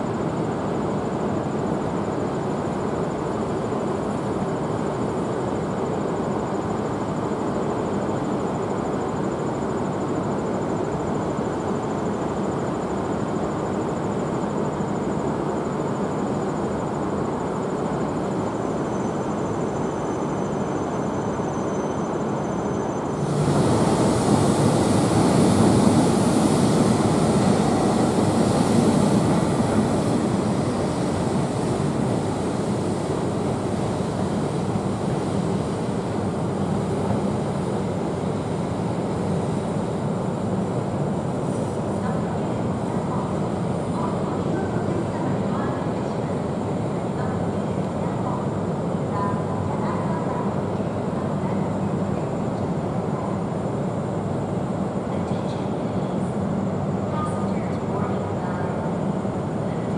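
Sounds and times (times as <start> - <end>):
train running noise: 14.7 - 49.7
loud rushing hiss: 23.1 - 39.6.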